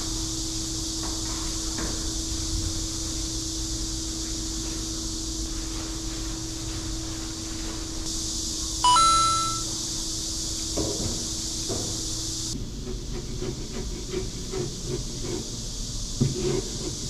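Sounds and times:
two-note electronic beep: 0:08.8 - 0:09.7.

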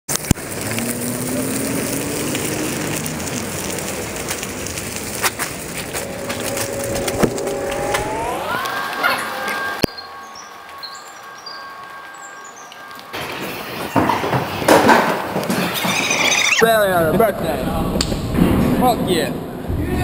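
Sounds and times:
rough rumble of bike ride: 0:00.1 - 0:08.7
faint hum rising in pitch: 0:05.6 - 0:14.0.

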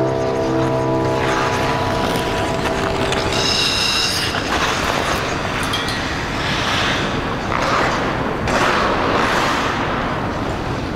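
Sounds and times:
steady low rumble: 0:00.0 - 0:07.5
skate blades swishing on ice: 0:02.9 - 0:05.7.

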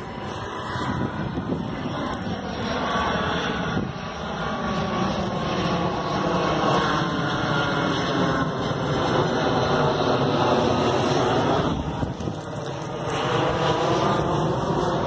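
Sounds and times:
jet aircraft engines rumbling: 0:00.0 - 0:15.0.

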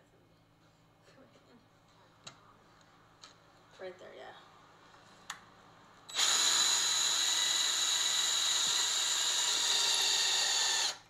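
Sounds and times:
power drill boring into wood: 0:06.1 - 0:11.0.

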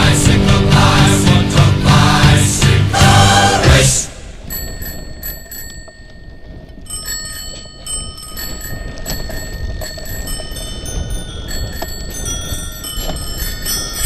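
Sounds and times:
tyres rumbling on trail: 0:00.0 - 0:14.0
wind: 0:02.2 - 0:14.0
bicycle bell ringing: 0:04.4 - 0:14.0.

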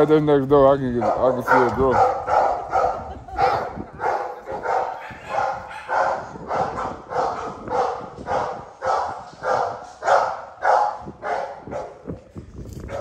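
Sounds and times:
dog barking: 0:01.0 - 0:12.1.

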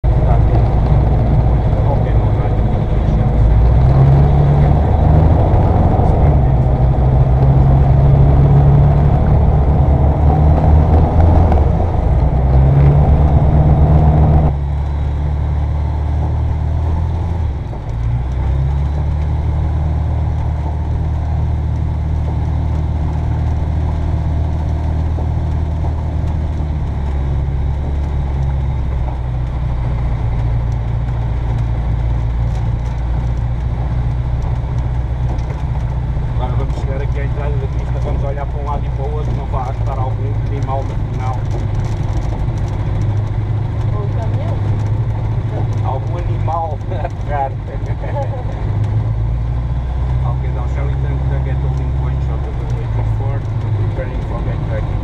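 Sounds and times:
ultralight aircraft engine running: 0:00.0 - 0:55.0.

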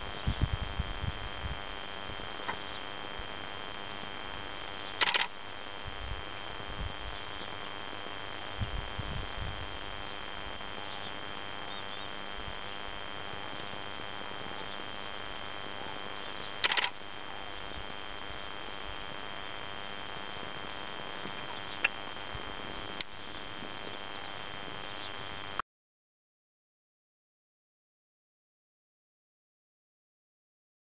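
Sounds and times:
steady hiss with high whine: 0:00.0 - 0:25.6
sharp clicks: 0:05.0 - 0:05.4, 0:16.6 - 0:17.0.

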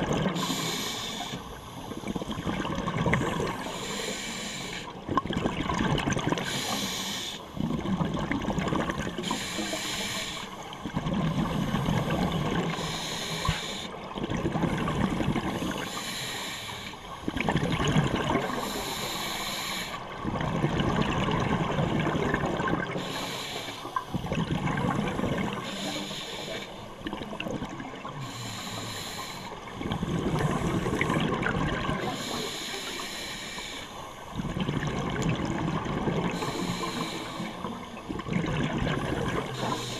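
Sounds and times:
exhaust bubbles bubbling: 0:00.0 - 0:00.4, 0:02.0 - 0:03.6, 0:05.0 - 0:06.5, 0:07.6 - 0:09.2, 0:10.8 - 0:12.8, 0:13.5 - 0:15.9, 0:17.2 - 0:18.7, 0:20.1 - 0:23.0, 0:24.1 - 0:25.6, 0:29.7 - 0:32.3, 0:34.4 - 0:37.0, 0:37.6 - 0:39.9
regulator hissing inhalation: 0:00.4 - 0:01.4, 0:06.5 - 0:07.4, 0:09.2 - 0:10.5, 0:12.8 - 0:14.0, 0:15.8 - 0:17.0, 0:18.5 - 0:20.0, 0:23.0 - 0:23.9, 0:25.6 - 0:26.8, 0:28.2 - 0:29.6, 0:36.3 - 0:37.7, 0:39.5 - 0:39.9.

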